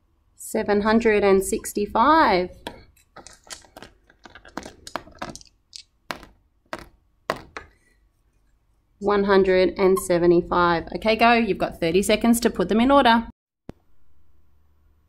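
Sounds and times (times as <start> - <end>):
plastic dice clattering: 3.2 - 6.3
dice tapping down: 3.2 - 7.7.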